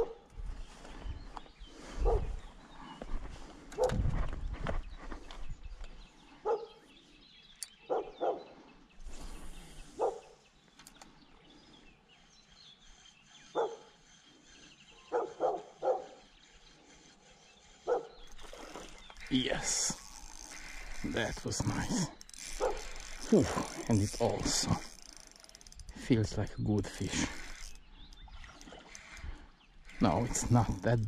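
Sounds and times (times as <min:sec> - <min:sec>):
dog barking: 0:06.4 - 0:06.7, 0:07.9 - 0:08.4, 0:13.6 - 0:13.8, 0:15.1 - 0:16.1, 0:17.9 - 0:18.1.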